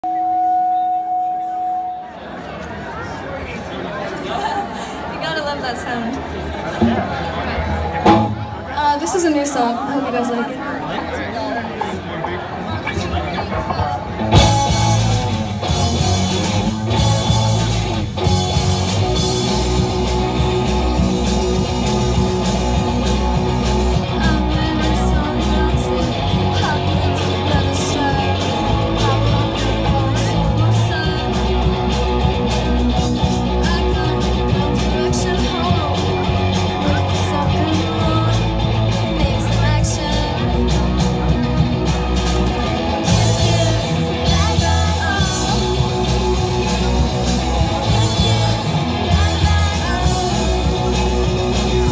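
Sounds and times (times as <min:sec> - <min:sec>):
drums: 0:05.2 - 0:10.6, 0:11.4 - 0:51.9
bass guitar: 0:06.5 - 0:09.0, 0:11.8 - 0:51.9
electric guitar: 0:11.7 - 0:51.9.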